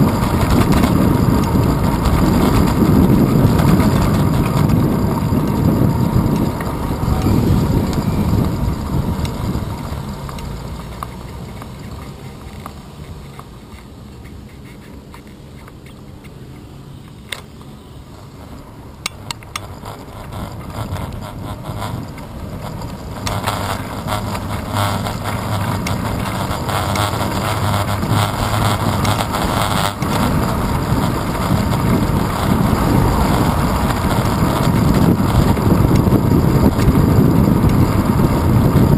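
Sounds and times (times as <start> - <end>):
wind buffeting microphone: 0.0 - 13.3, 19.4 - 38.9
car engine hum: 0.0 - 38.9
road noise: 0.0 - 38.9
sharp clicks: 18.5 - 27.4.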